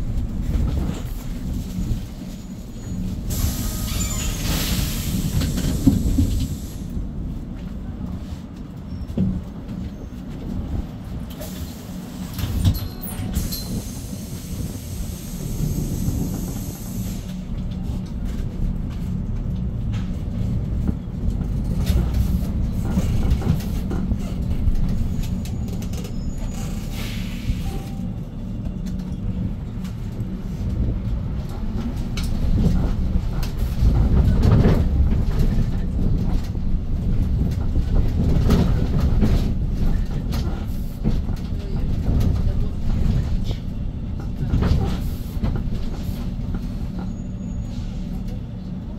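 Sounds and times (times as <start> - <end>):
bus engine rumble: 0.0 - 48.9
road noise: 0.0 - 48.9
hiss: 3.3 - 6.9, 13.4 - 17.4.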